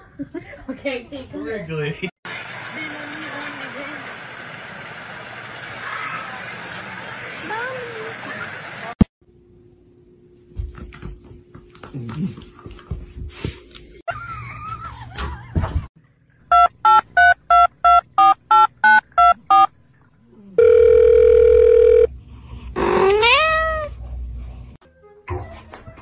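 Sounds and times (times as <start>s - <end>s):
telephone beeps: 16.5s - 19.7s, 20.6s - 22.1s
long steady beep: 20.6s - 22.1s.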